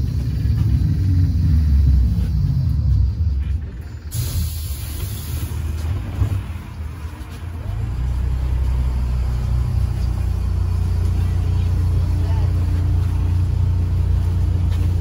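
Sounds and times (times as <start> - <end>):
trolleybus rumble and hum: 0.0 - 15.0
brief hiss: 4.1 - 5.9.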